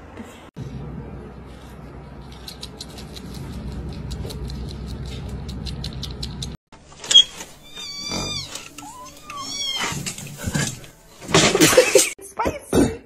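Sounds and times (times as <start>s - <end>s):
cat meowing: 7.6s - 10.0s.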